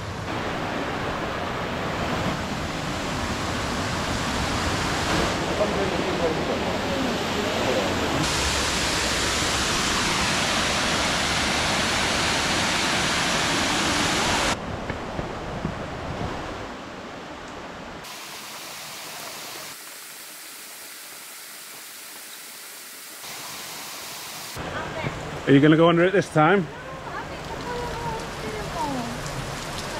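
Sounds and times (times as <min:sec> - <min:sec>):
waterfall rushing: 0:00.0 - 0:14.6, 0:18.0 - 0:29.9
stream flowing over rocks: 0:18.0 - 0:25.4.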